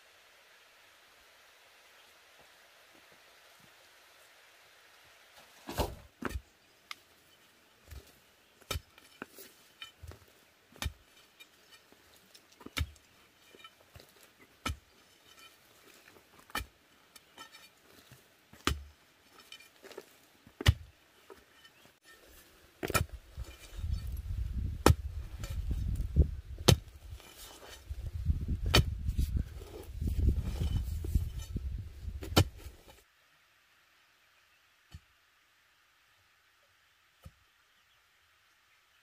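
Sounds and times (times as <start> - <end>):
metal bar thudding into ground: 5.6 - 6.4
earth and stones clinking: 7.8 - 32.8.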